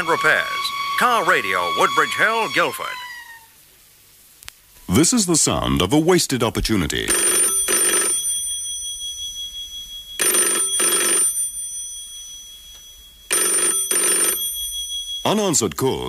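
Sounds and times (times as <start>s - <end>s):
telephone bell ringing: 7.1s - 15.4s.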